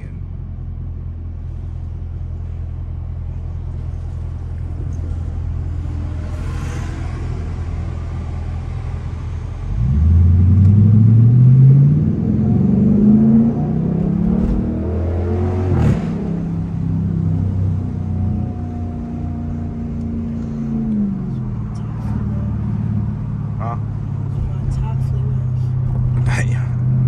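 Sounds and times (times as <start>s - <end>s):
car engine revving: 3.4s - 27.0s.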